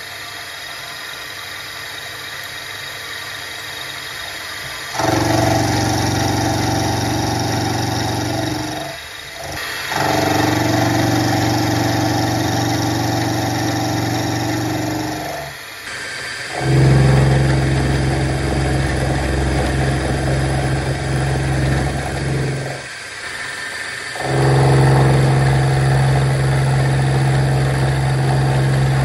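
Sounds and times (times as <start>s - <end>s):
milling machine cutting metal: 3.8s - 29.0s.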